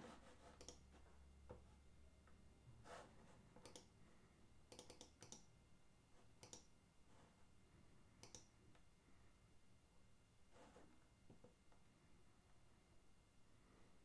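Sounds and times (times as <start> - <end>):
faint clicks and taps: 0.6 - 2.4, 3.5 - 4.0, 11.2 - 11.9.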